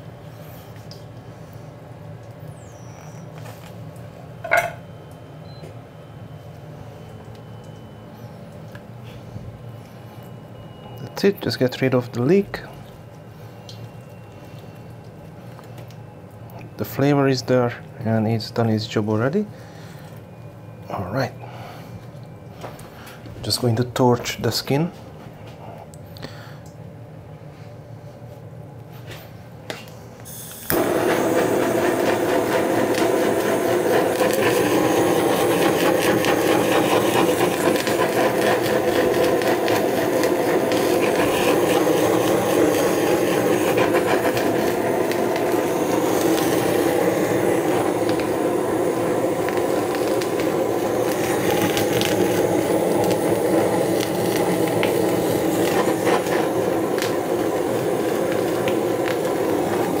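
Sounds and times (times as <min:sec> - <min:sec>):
blowtorch jet roar: 0:30.3 - 1:00.0.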